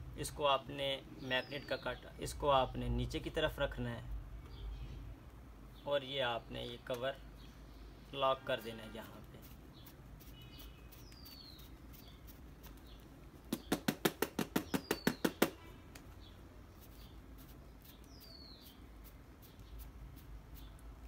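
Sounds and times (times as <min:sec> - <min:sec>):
high bird chirps: 0:09.4 - 0:13.9, 0:14.6 - 0:20.8.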